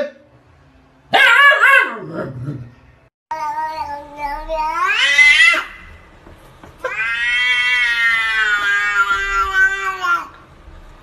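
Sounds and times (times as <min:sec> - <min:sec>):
cat yowling: 0:04.6 - 0:05.9, 0:06.8 - 0:10.3.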